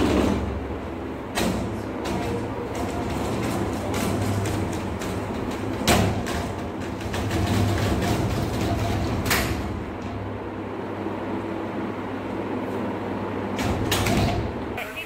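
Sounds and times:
sharp knocks: 0:00.0 - 0:10.4
steady hum: 0:00.0 - 0:15.0.

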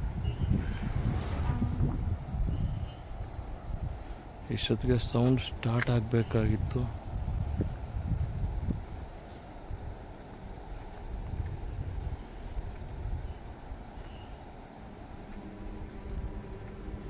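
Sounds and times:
low microphone rumble: 0:00.0 - 0:03.9
cricket chirping: 0:00.0 - 0:17.0.

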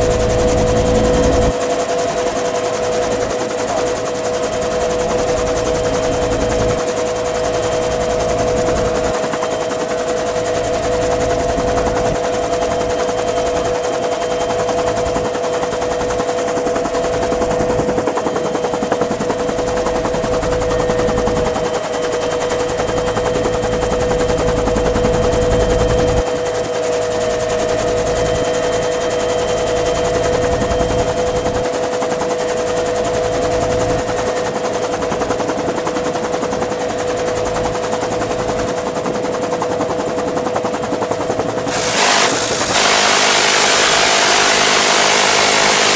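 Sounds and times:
helicopter drone: 0:00.0 - 0:45.9
minigun firing rapidly: 0:41.6 - 0:45.9.

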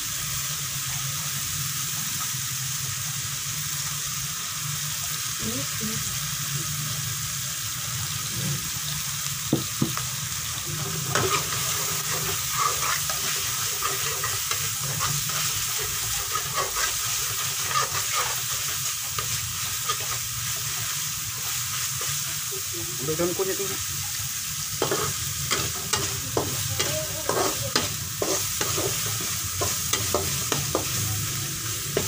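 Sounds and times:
spice paste sizzling in oil: 0:00.0 - 0:32.0
metal spatula scraping pan: 0:10.8 - 0:20.2.

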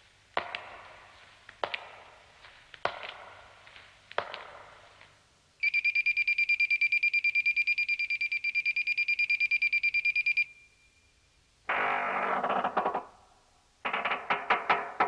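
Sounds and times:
faint steady tone: 0:03.2 - 0:11.7
electronic alarm beeping: 0:05.6 - 0:11.1.

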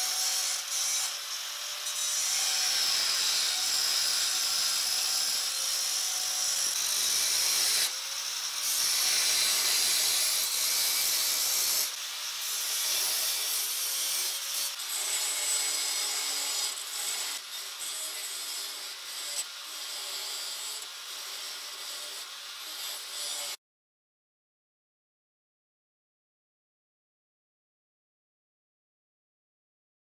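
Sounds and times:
angle grinder grinding steel: 0:00.0 - 0:23.6.

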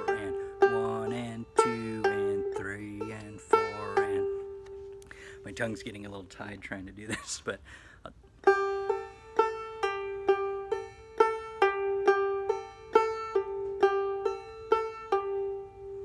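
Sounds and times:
banjo notes: 0:00.0 - 0:07.1, 0:08.1 - 0:16.0.

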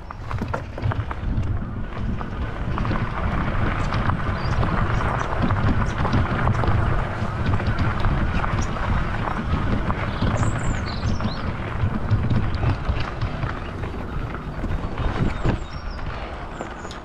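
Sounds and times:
bike tyres crunching on gravel: 0:00.0 - 0:17.0
wind rumbling on microphone: 0:00.0 - 0:17.0
bird chirping: 0:09.9 - 0:17.0.

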